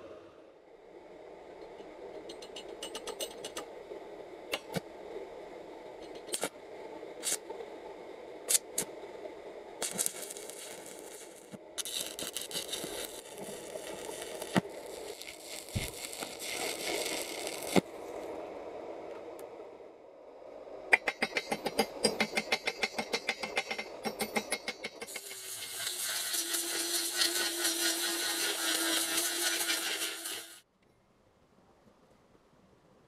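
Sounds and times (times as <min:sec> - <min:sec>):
arc welding crackle: 0:06.1 - 0:06.5, 0:07.2 - 0:07.4, 0:08.5 - 0:08.9, 0:09.8 - 0:18.3, 0:25.0 - 0:30.7.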